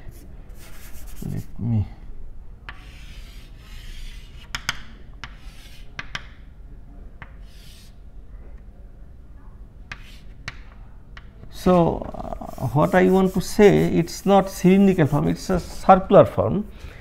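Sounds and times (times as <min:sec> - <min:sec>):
chalk scratching on chalkboard: 0:00.0 - 0:01.5, 0:02.7 - 0:06.2, 0:07.4 - 0:08.0, 0:09.9 - 0:10.4, 0:12.0 - 0:16.0
chalk tapping on board: 0:02.7 - 0:06.4, 0:09.9 - 0:10.6.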